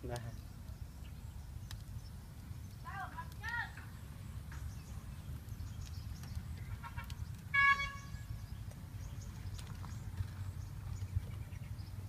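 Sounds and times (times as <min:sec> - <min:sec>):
low rumble of background noise: 0:00.0 - 0:12.0
vehicle horn toot: 0:06.8 - 0:08.3.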